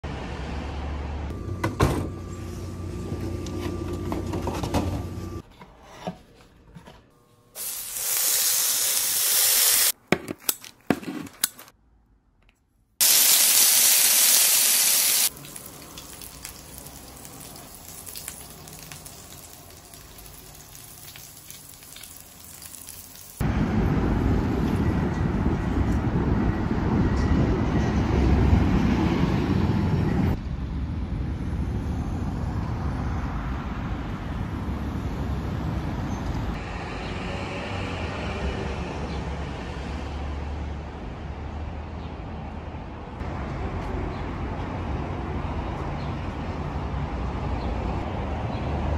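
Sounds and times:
street traffic noise: 0.0s - 5.4s, 9.7s - 48.9s
meat sizzling on a grill: 7.6s - 9.9s, 13.0s - 23.4s.

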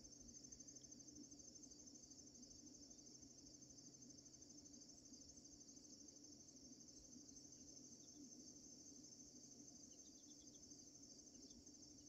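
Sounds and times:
insect chorus trilling: 0.0s - 12.0s.

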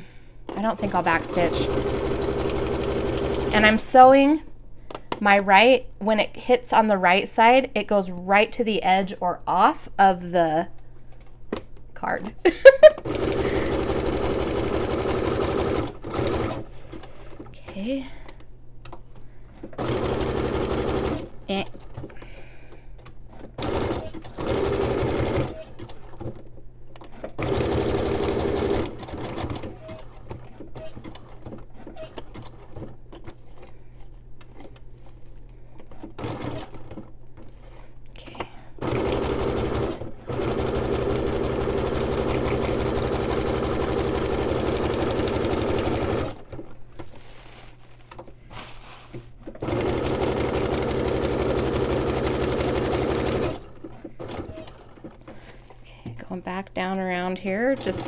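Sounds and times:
sewing machine stitching: 0.5s - 3.8s, 13.0s - 17.4s, 19.8s - 22.1s, 23.3s - 26.4s, 27.0s - 33.6s, 35.9s - 37.1s, 38.8s - 46.6s, 49.4s - 55.1s, 57.6s - 58.0s.

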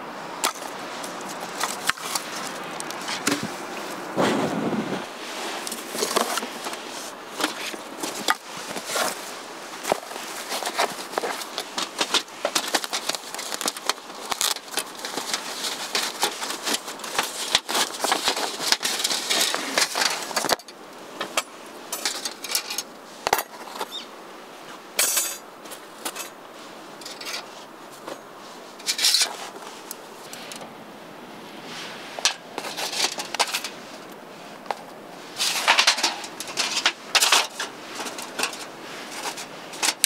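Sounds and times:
crackly rustle: 0.0s - 40.0s
objects clicking and clinking: 35.4s - 40.0s.

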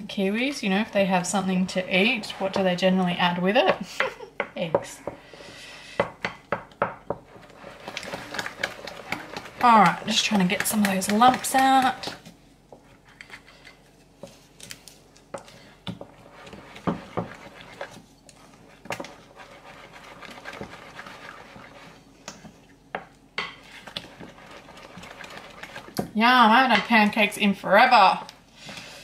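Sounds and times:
spoon stirring thick batter: 0.0s - 3.9s, 4.8s - 14.6s, 15.3s - 26.1s.

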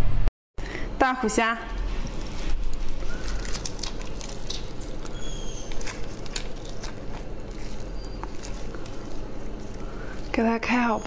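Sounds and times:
prawn shell cracking: 2.1s - 10.3s.

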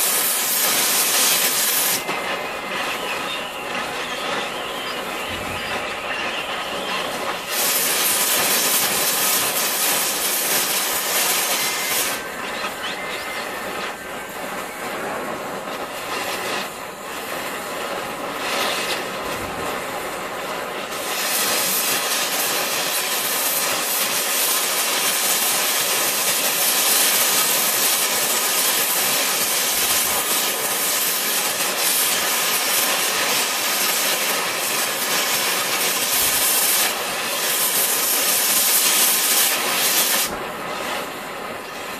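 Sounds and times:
torch flame hissing: 0.0s - 41.9s.

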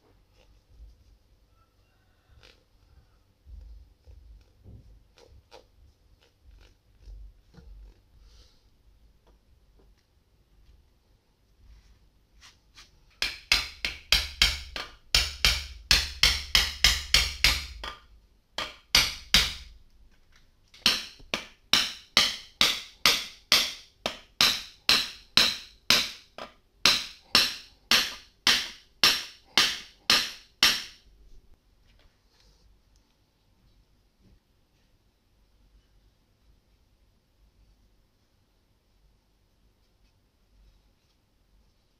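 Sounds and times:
hammer striking steel rod: 13.2s - 19.8s, 20.8s - 31.0s.

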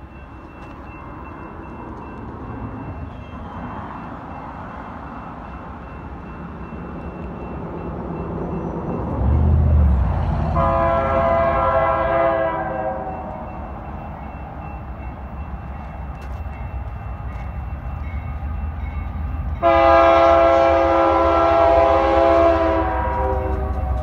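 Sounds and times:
train rumble: 0.0s - 24.0s
locomotive air horn chord: 10.5s - 13.4s, 19.6s - 24.0s.

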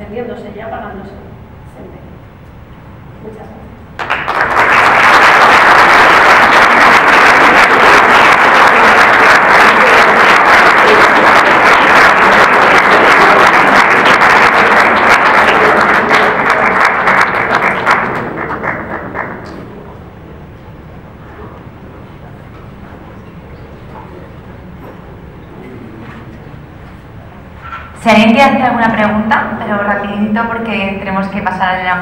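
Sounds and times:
audience applauding: 4.0s - 19.8s.

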